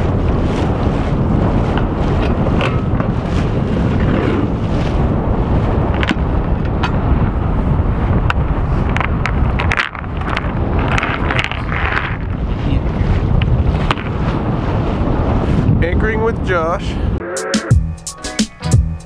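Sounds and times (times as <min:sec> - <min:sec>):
wind buffeting microphone: 0:00.0 - 0:17.2.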